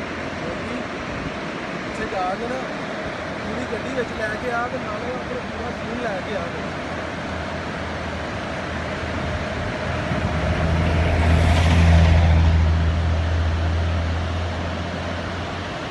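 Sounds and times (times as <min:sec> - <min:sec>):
low engine hum: 0:00.0 - 0:15.9
road noise: 0:00.0 - 0:15.9.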